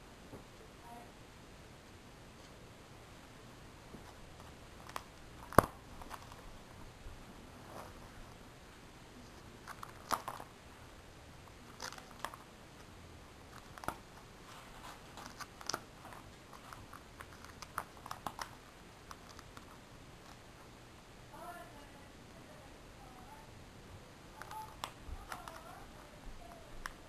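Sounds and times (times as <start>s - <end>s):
plastic pages crinkling: 4.0s - 6.5s, 9.2s - 10.6s, 11.6s - 12.5s, 13.5s - 20.4s, 24.4s - 26.6s.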